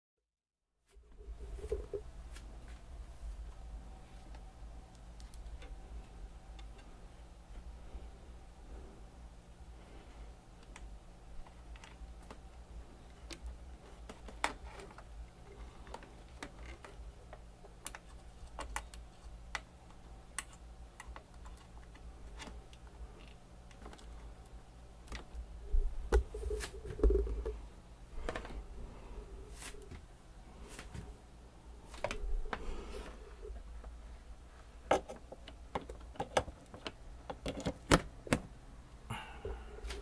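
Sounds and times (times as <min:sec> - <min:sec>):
low steady hum: 0:00.7 - 0:40.0
cables and plugs clicking: 0:04.2 - 0:07.7, 0:10.5 - 0:25.5, 0:34.9 - 0:38.5.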